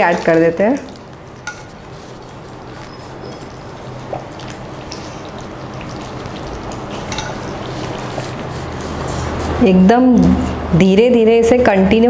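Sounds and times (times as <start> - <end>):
gravy being poured: 0.0 - 9.6
food bubbling in a pot: 0.0 - 9.7.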